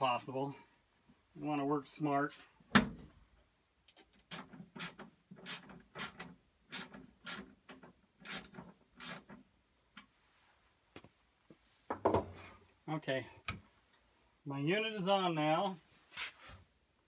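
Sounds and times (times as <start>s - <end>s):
rubbing and scraping handling noises: 15.8s - 16.7s.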